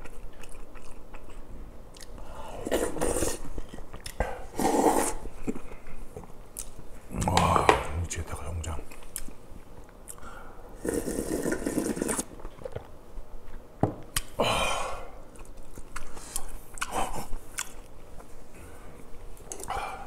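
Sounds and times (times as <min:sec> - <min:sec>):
chewing: 0:00.0 - 0:04.2, 0:11.3 - 0:14.4, 0:15.3 - 0:18.4
person slurping broth: 0:02.6 - 0:03.5, 0:04.5 - 0:05.3, 0:10.8 - 0:12.3.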